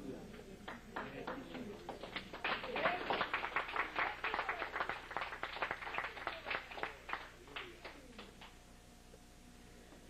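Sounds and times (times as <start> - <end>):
crowd applauding: 0.6 - 8.5.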